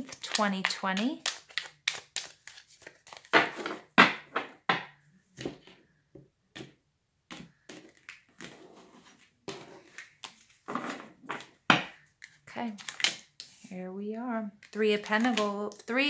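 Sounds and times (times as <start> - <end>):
cards shuffled on wooden table: 0.0 - 4.6, 6.6 - 13.7.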